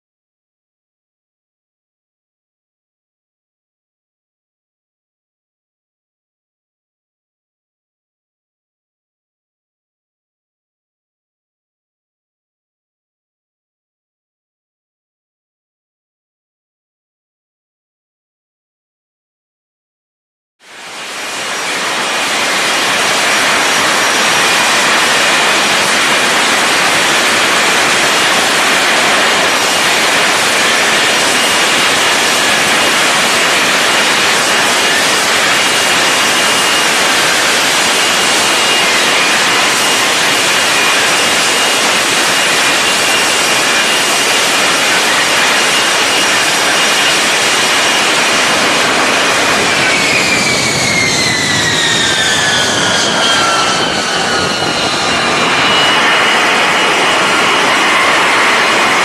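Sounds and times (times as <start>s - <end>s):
jet engine noise with high whine: 20.6s - 59.0s.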